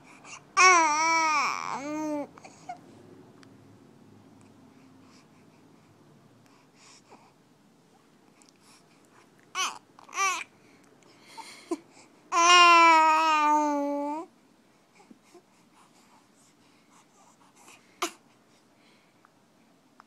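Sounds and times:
baby babbling: 0.6 - 2.8, 9.5 - 10.5, 12.3 - 14.3.

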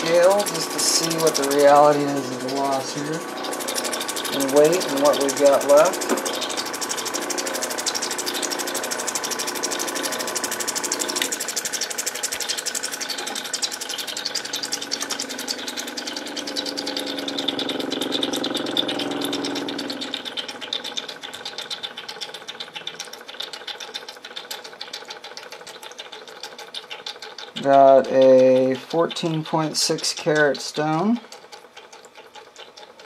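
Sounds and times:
electric motor running: 0.0 - 21.7
rapid even ticking: 0.0 - 33.0.

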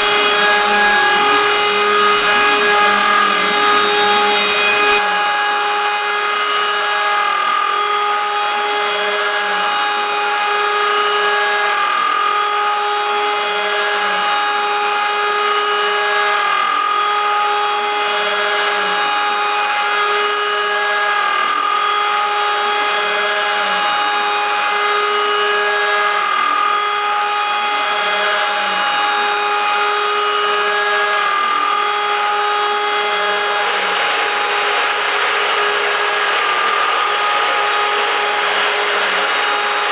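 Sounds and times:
high hiss of cutting metal: 0.0 - 5.0
router spindle whining: 0.0 - 39.9.

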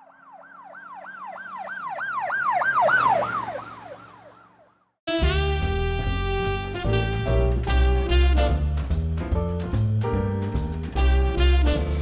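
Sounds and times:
emergency vehicle yelp siren: 0.0 - 5.0
music: 5.1 - 12.0.

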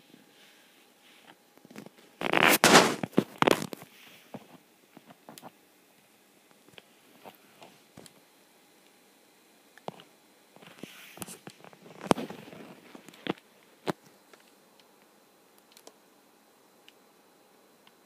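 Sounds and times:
phone rustling and rubbing: 0.4 - 5.5, 9.9 - 14.0.

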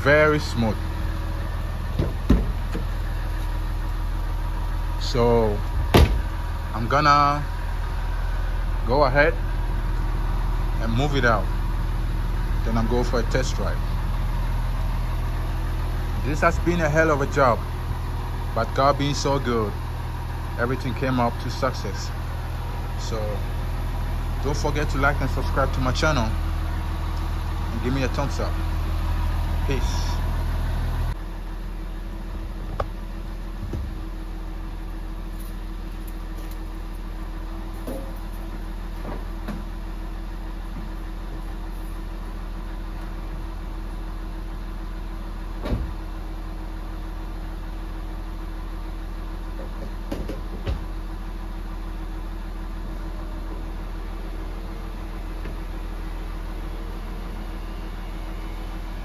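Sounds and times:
car engine idling: 0.0 - 59.0.

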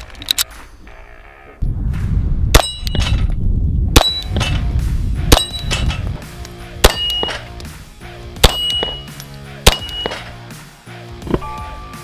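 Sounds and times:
steady low rumble: 1.6 - 9.0
steel target ringing clang: 2.6 - 3.3, 4.0 - 4.6, 5.3 - 6.1, 6.8 - 7.5, 8.4 - 9.1, 9.7 - 10.4
pistol shots: 6.8 - 7.5, 8.4 - 10.3.

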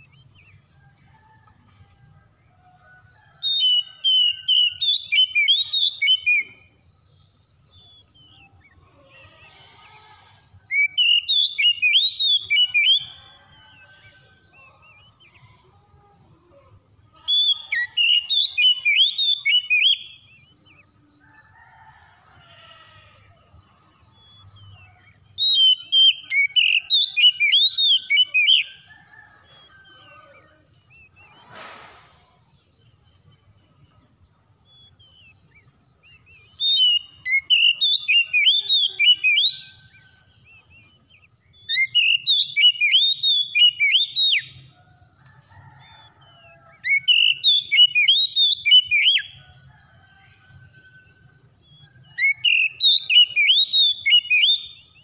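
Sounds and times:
bird singing whistled phrases: 41.7 - 44.5.

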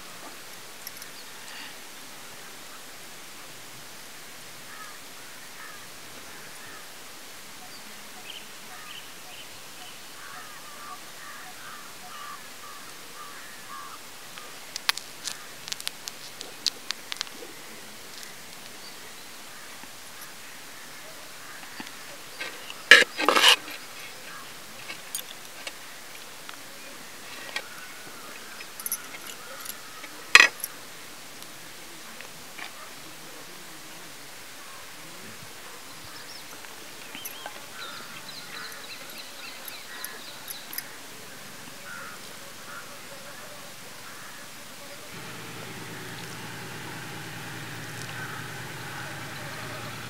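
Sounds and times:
outdoor hiss: 0.0 - 50.0
faint birds calling: 4.7 - 7.0, 7.6 - 30.9, 34.6 - 50.0
metal spoon scooping rice: 22.7 - 23.8.

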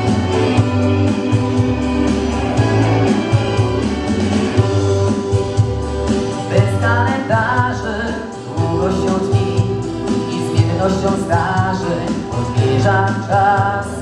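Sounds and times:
pop song accompaniment with beat: 0.0 - 14.0
man singing into a microphone: 6.4 - 14.0.

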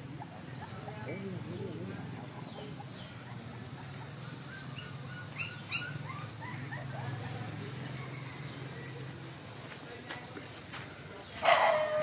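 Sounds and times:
puppies squeaking and whimpering: 0.0 - 7.7.

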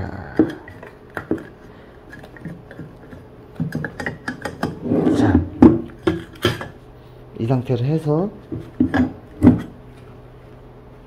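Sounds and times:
scraping rub: 4.7 - 5.6.

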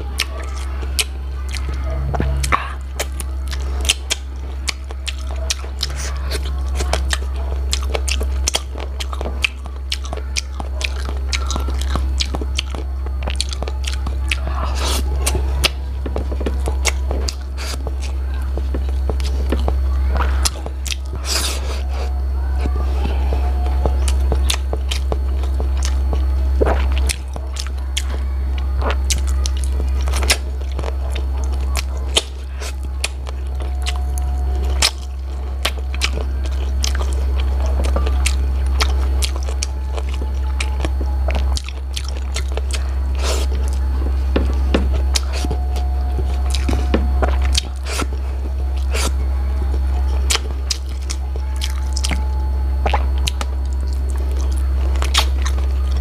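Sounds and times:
chewing and crunching: 0.0 - 56.0
low rumble: 1.8 - 2.9.

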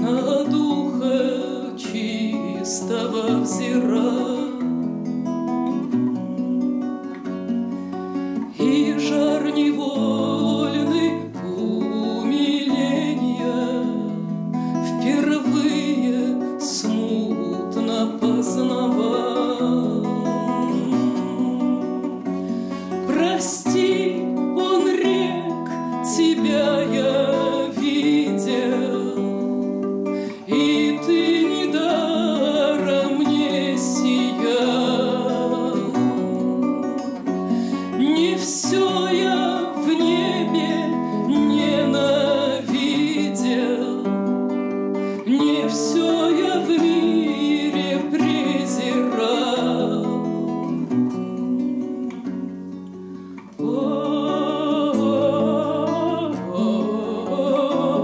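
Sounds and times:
woman singing slowly: 0.0 - 4.7, 8.4 - 22.3, 23.0 - 44.4, 45.2 - 52.6, 53.4 - 58.0
classical guitar: 0.0 - 58.0.

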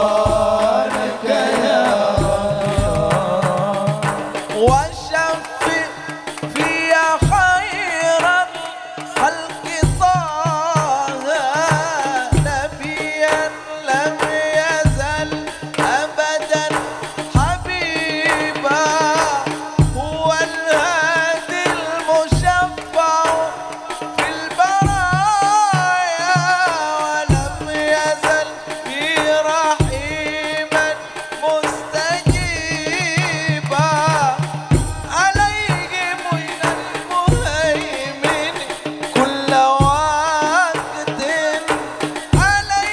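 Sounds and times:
drums beating steady rhythm: 0.0 - 42.9
man singing devotional melody: 0.0 - 42.9.

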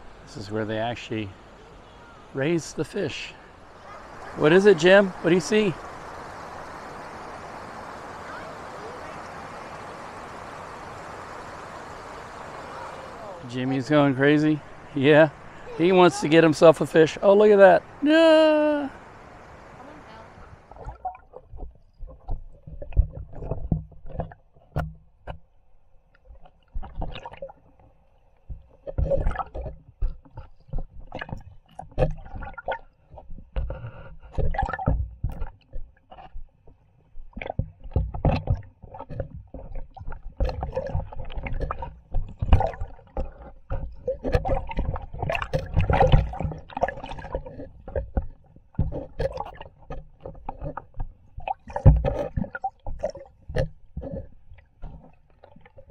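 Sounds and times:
water sloshing and splashing: 0.0 - 55.9
knocks and gurgles: 20.7 - 25.5, 26.3 - 27.8, 28.4 - 55.9.

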